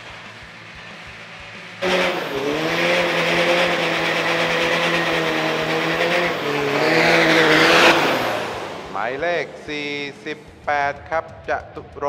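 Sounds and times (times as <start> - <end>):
spinning tyres hissing: 0.0 - 10.7
engine revving high: 1.8 - 10.6.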